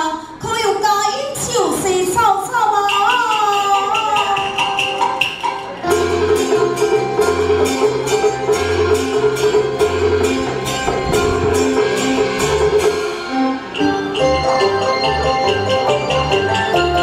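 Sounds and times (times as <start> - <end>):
percussion beat: 2.9 - 17.0
traditional ensemble melody: 3.9 - 17.0.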